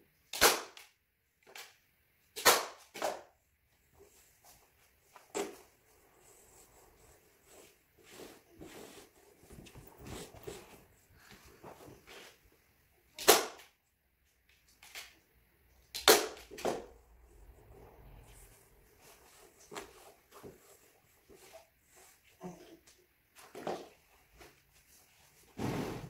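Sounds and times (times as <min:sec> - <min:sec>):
fabric rustling: 0:03.7 - 0:12.7.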